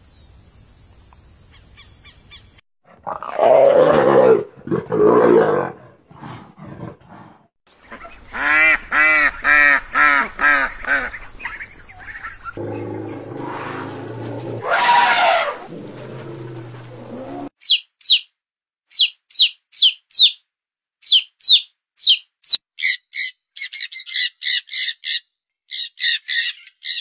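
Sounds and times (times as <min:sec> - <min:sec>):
elephant trumpeting: 0:12.6 - 0:17.5.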